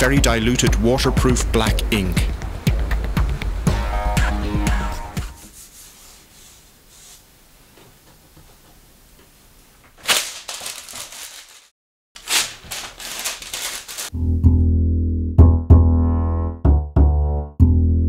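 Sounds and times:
faint background music: 0:00.0 - 0:05.4
paper rustling and rubbing: 0:05.4 - 0:07.2, 0:10.0 - 0:14.1.

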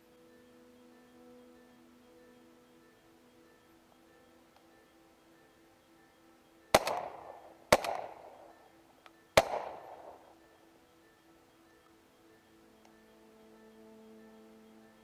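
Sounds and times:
shotgun shots echoing: 0:06.7 - 0:08.6, 0:09.4 - 0:10.2.

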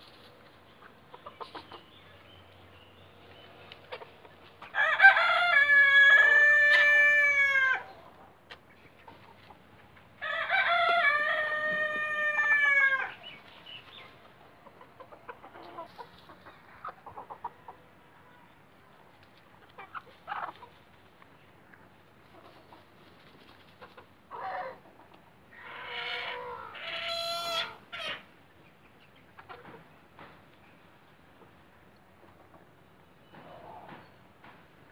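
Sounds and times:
hens clucking quietly: 0:00.0 - 0:34.0
rooster crowing: 0:04.7 - 0:07.9, 0:10.2 - 0:13.2.

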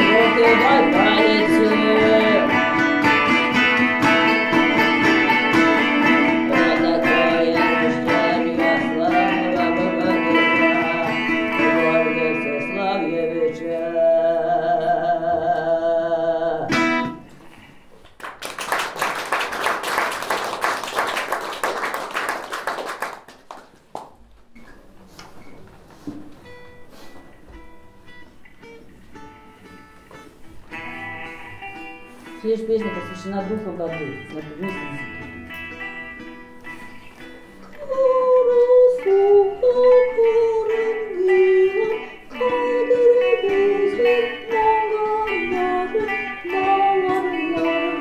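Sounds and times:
balalaika plucking: 0:00.0 - 0:14.0
audience applauding: 0:18.0 - 0:24.2.

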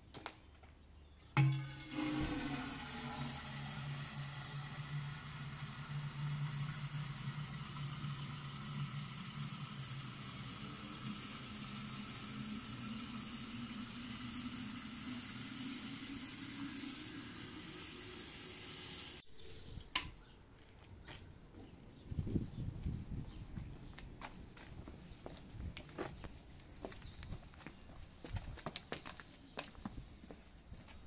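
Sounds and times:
tap water filling metal jug: 0:01.4 - 0:19.2.

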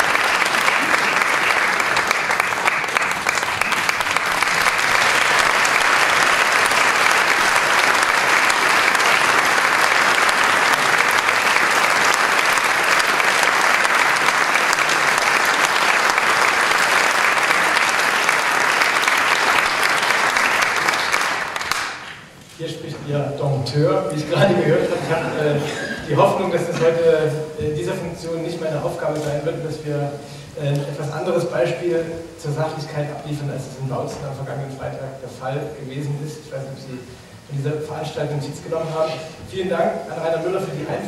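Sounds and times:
audience applauding: 0:00.0 - 0:22.4.

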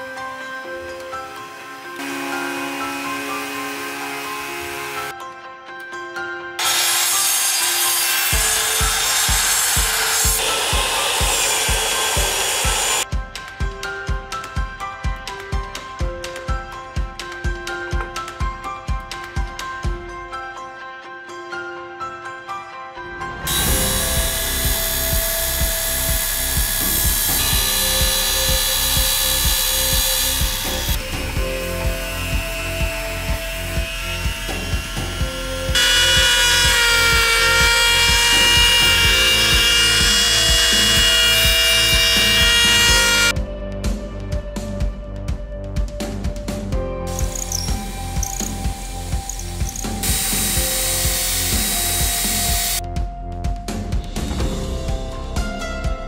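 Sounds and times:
background music with steady beat: 0:00.0 - 0:56.0
power saws cutting timber: 0:00.6 - 0:05.1, 0:06.6 - 0:13.0, 0:23.5 - 0:43.3, 0:47.1 - 0:52.8
orbital sander running: 0:01.1 - 0:05.1, 0:06.6 - 0:13.0, 0:23.5 - 0:43.3, 0:47.2 - 0:52.8.

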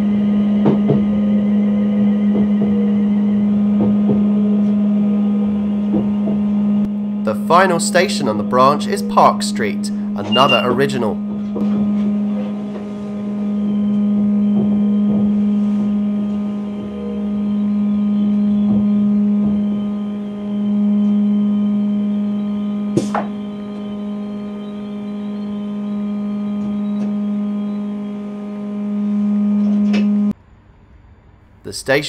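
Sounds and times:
electrical hum in train cab: 0:00.0 - 0:32.0.

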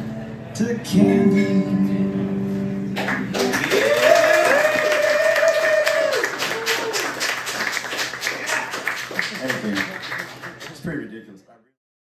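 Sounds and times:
audience applauding and cheering: 0:03.0 - 0:10.9
long high whoop: 0:03.6 - 0:07.2.

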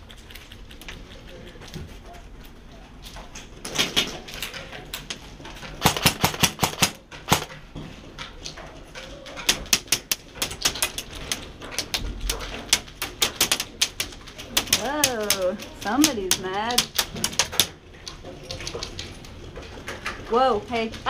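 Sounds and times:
airsoft gun rapid fire: 0:05.8 - 0:07.5.

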